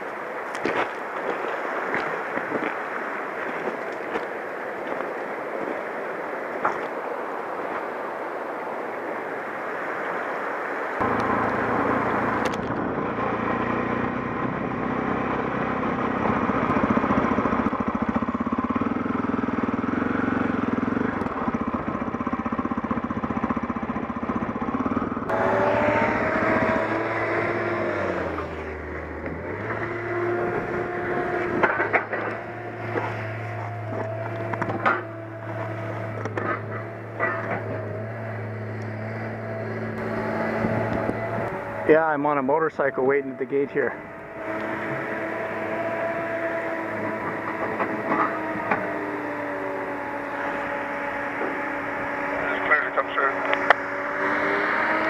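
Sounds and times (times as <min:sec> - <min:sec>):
river flowing over stones: 0:00.0 - 0:12.8
motorcycle engine running: 0:11.0 - 0:55.0.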